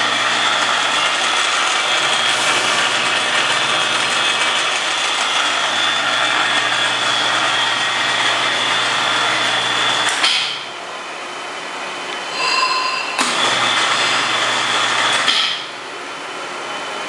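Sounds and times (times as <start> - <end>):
electric gear motor whining: 0.0 - 10.2.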